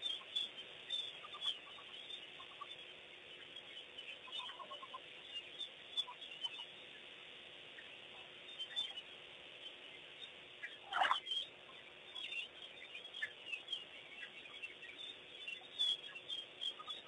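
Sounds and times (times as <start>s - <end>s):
birds chirping and twittering: 0.0s - 17.0s
loud bird call: 10.7s - 11.3s.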